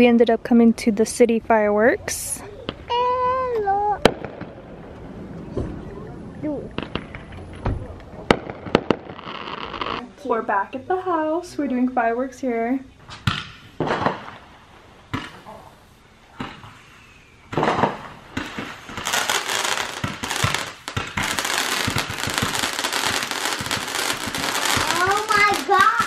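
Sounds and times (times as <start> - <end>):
firework crackling and popping: 2.6 - 5.6, 6.7 - 10.0, 13.2 - 15.5, 17.5 - 26.0
firework pops: 6.8 - 10.0, 13.1 - 14.4, 17.5 - 26.0.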